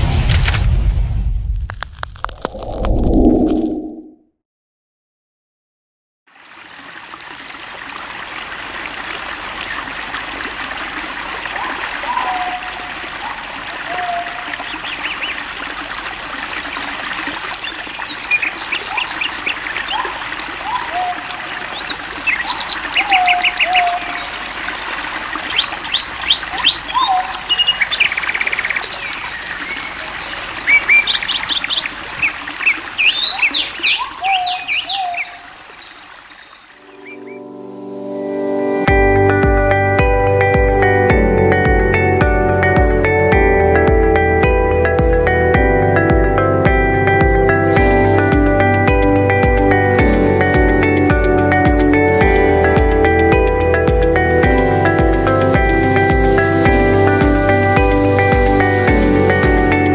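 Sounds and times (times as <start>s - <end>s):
stream running over rocks: 6.3s - 37.2s
birds whistling and chirping: 21.8s - 37.4s.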